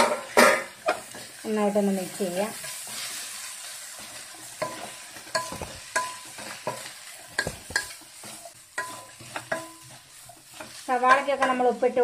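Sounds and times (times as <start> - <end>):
low sizzle: 0.0 - 12.0
spatula tapping and scraping pan: 2.6 - 12.0.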